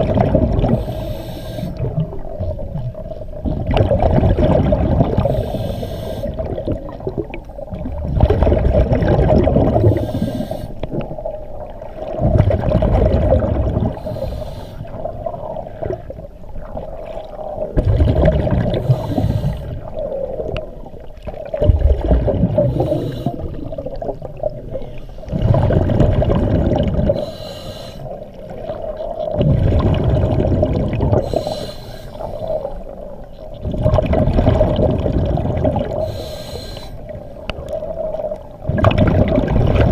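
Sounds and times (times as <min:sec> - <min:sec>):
exhaled bubbles rushing: 0:00.0 - 0:14.2, 0:14.8 - 0:27.3, 0:28.1 - 0:31.5, 0:32.2 - 0:36.2, 0:37.0 - 0:39.9
regulator inhalations: 0:00.8 - 0:01.9, 0:05.2 - 0:06.4, 0:09.9 - 0:10.8, 0:14.0 - 0:15.0, 0:18.8 - 0:19.8, 0:22.7 - 0:23.6, 0:27.2 - 0:28.2, 0:31.2 - 0:32.7, 0:36.0 - 0:37.0.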